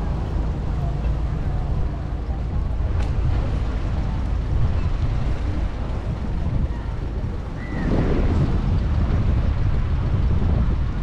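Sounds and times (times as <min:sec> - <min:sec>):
faint outdoor background noise: 0:00.0 - 0:08.2
wind buffeting microphone: 0:00.0 - 0:11.0.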